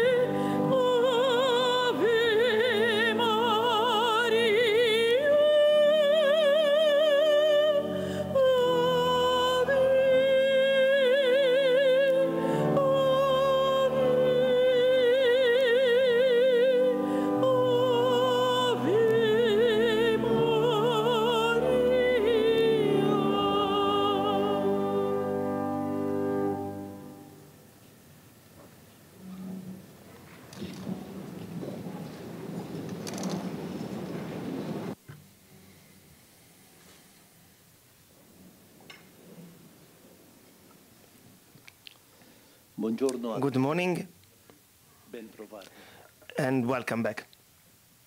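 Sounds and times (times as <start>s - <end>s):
woman singing opera: 0.0s - 26.8s
sustained instrumental accompaniment: 12.0s - 27.6s.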